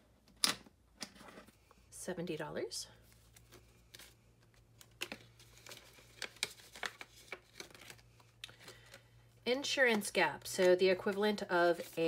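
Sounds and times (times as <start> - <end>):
plastic envelopes crinkling: 3.0 - 9.3.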